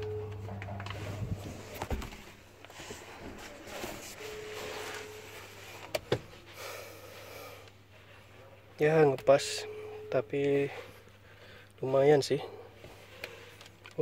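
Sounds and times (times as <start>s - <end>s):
steady low hum: 0.0s - 14.0s
clothing rustling against seat: 0.9s - 6.6s.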